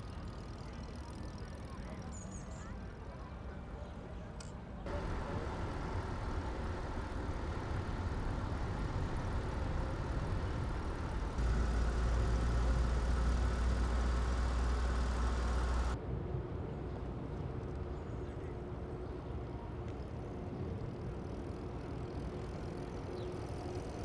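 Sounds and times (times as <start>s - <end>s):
low hum: 4.9s - 16.0s
road traffic rumble: 4.9s - 16.0s.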